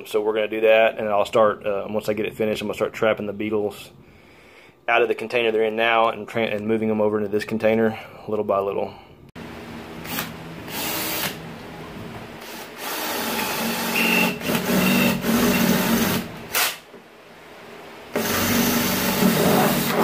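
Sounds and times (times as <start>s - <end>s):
cordless drill boring sheet metal: 10.0s - 11.4s, 12.4s - 16.6s, 18.2s - 20.0s.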